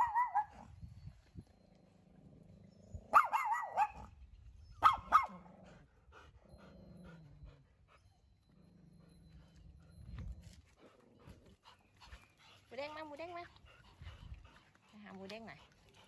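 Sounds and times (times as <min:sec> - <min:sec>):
dog yapping: 0:00.0 - 0:00.5, 0:03.1 - 0:04.1, 0:04.8 - 0:05.4.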